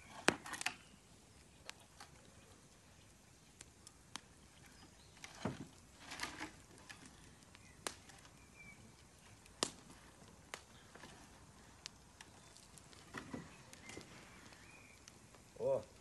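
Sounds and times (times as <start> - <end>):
firewood logs knocking: 0.1 - 0.8, 5.2 - 7.2, 11.9 - 14.6.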